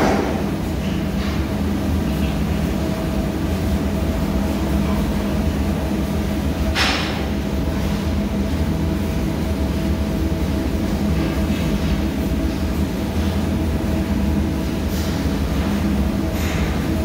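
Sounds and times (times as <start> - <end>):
ship engine machinery drone: 0.0 - 17.0.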